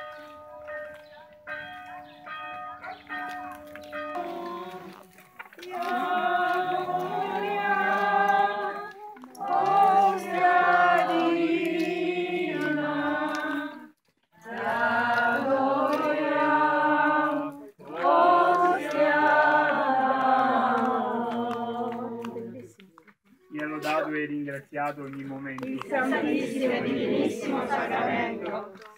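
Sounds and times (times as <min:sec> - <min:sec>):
group singing a hymn: 0:04.1 - 0:22.8, 0:25.6 - 0:28.9.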